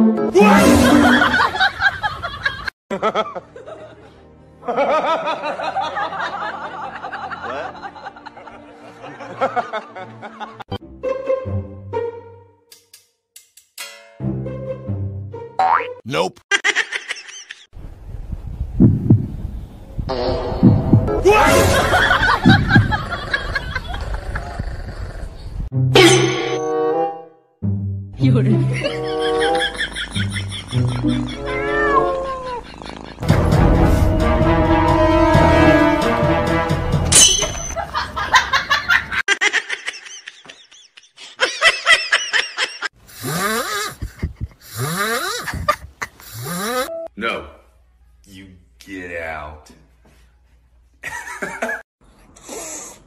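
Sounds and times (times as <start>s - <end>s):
music: 0.0s - 1.2s, 2.9s - 13.2s, 14.1s - 16.0s, 25.7s - 26.0s, 26.7s - 31.9s, 33.2s - 37.2s
dog heartbeat thumps: 18.8s - 19.4s, 44.0s - 44.6s
person giggling: 39.3s - 46.9s, 51.0s - 51.8s.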